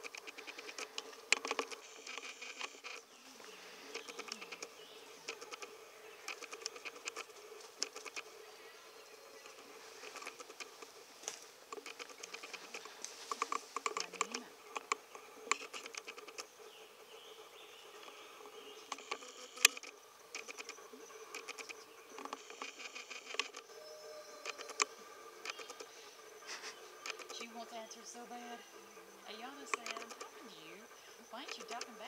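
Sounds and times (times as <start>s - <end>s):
leaves crackling under paws: 9.5s - 14.5s.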